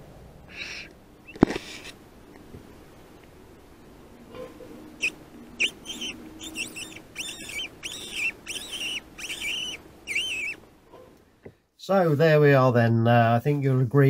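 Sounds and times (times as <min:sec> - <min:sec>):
animal high calls: 0:04.3 - 0:10.6.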